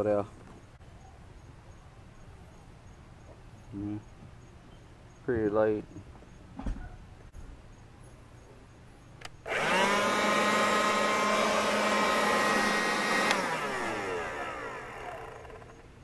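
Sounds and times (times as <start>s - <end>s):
leaf blower switch click: 9.2s - 15.6s
leaf blower motor whine: 9.4s - 16.0s.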